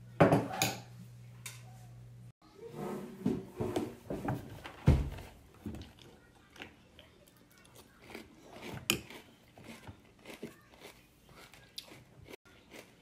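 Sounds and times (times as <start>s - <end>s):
crunchy chewing: 5.8s - 13.0s.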